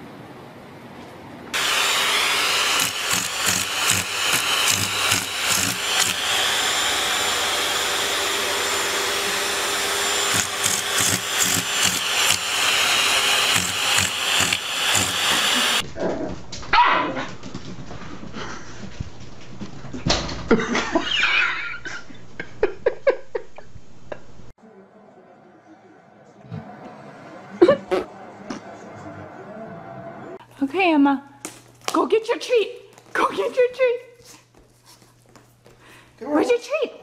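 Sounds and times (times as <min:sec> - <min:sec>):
vacuum cleaner whine: 0:01.6 - 0:15.8.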